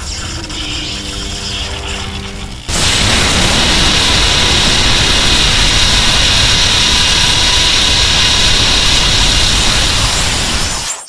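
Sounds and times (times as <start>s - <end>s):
jet-like rushing monster roar: 2.6s - 10.8s.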